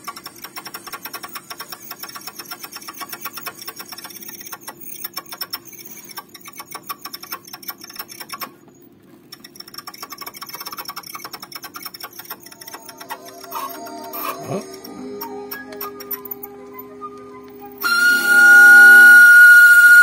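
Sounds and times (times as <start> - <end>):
record player rapid clicking: 0.0 - 13.8.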